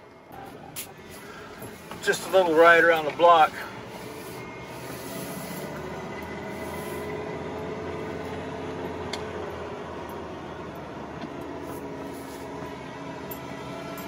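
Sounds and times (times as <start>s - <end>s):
pickup engine running: 0.0s - 14.0s
road noise: 0.0s - 14.0s.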